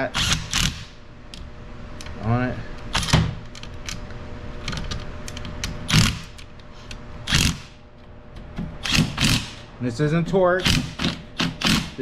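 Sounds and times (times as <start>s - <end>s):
impact driver hammering: 8.8s - 9.6s, 10.6s - 12.0s.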